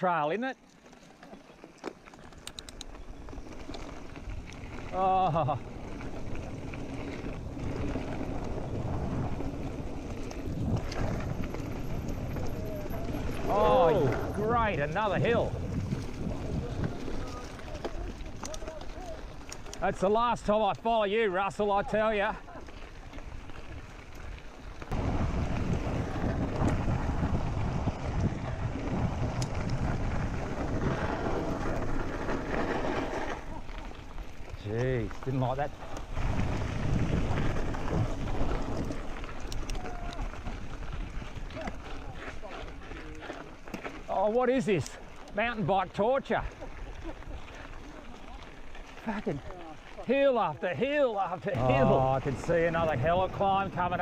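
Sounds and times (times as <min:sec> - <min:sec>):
bike tyres rumbling on dirt: 0:00.0 - 0:54.0
bike rattling over bumps: 0:00.2 - 0:54.0
wind on microphone: 0:06.9 - 0:17.6, 0:24.9 - 0:32.8, 0:36.1 - 0:42.2.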